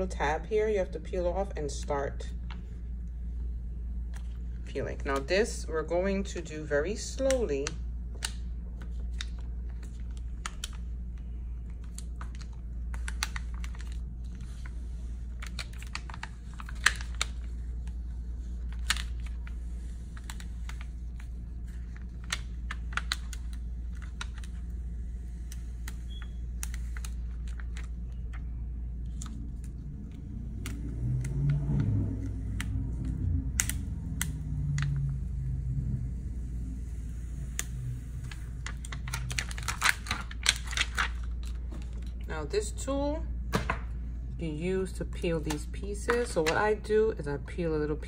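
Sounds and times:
steady low hum: 0.0s - 48.0s
vinyl peeling crackles: 7.2s - 42.2s
low rumble: 27.3s - 45.2s.

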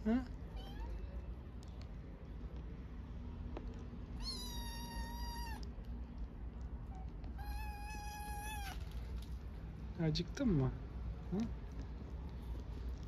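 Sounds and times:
kitten meowing: 0.5s - 1.1s, 4.2s - 5.7s, 7.3s - 8.8s.

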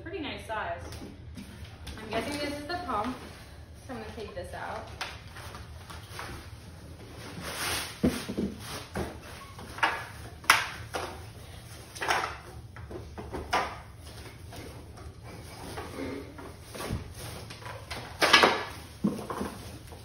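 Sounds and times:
rustling and scuffing: 4.0s - 10.2s.

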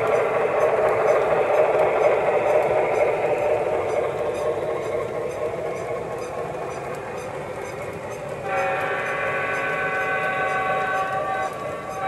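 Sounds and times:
model train cars rolling: 0.0s - 12.0s
wheel clicks on rail joints: 0.0s - 12.0s
electronic multi-tone train horn: 8.4s - 12.0s.

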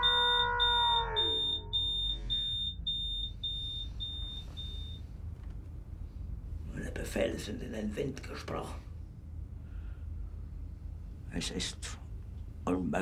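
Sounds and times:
smoke alarm beeping: 0.0s - 5.1s.

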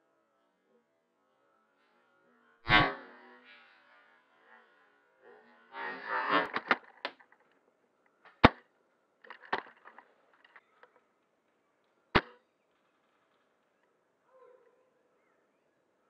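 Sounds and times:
rifle clicks and rattles: 9.2s - 11.0s
airsoft rifle cracks: 12.2s - 12.4s.

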